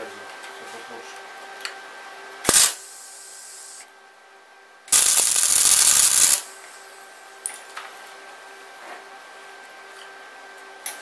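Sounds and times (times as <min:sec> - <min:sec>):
faint steady hum: 0:00.0 - 0:11.0
welder arc crackling: 0:02.5 - 0:03.8, 0:04.9 - 0:06.5.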